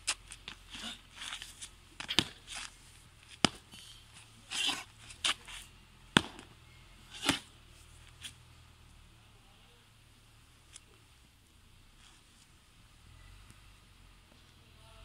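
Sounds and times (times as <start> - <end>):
shoes scuffing on gritty ground: 0.0 - 6.5, 7.1 - 7.5.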